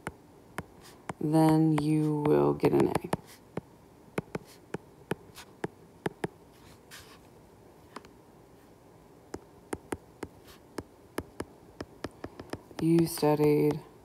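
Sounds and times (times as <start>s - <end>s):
stylus tapping on glass screen: 2.7s - 6.4s, 9.3s - 13.8s.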